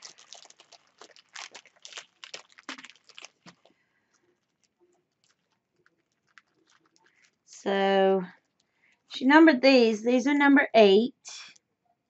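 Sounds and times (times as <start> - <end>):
plastic bags crinkling: 0.0 - 8.7.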